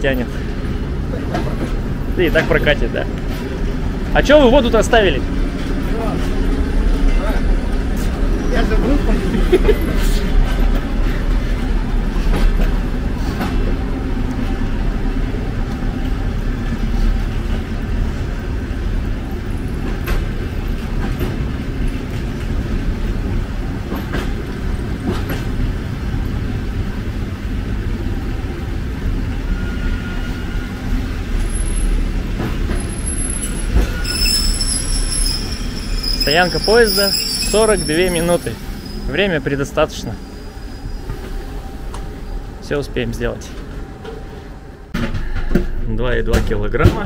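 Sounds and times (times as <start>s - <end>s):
railway cars rumbling on track: 0.0s - 47.0s.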